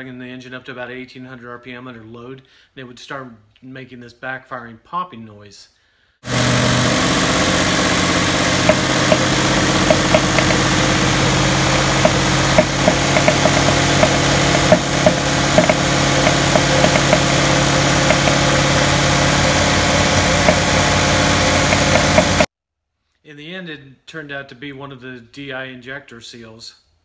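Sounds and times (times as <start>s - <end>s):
car engine running under load: 6.3s - 22.5s
sharp popping from engine: 6.3s - 22.5s.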